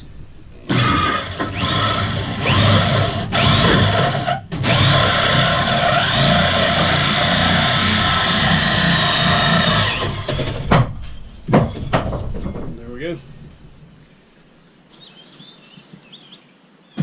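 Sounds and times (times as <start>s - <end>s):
electric drill with hole saw: 0.7s - 10.6s.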